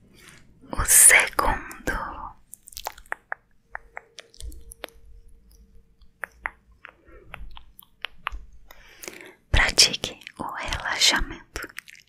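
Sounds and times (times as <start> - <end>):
faint steady hum: 0.0 - 12.0
mouth clicks and pops: 1.7 - 10.8.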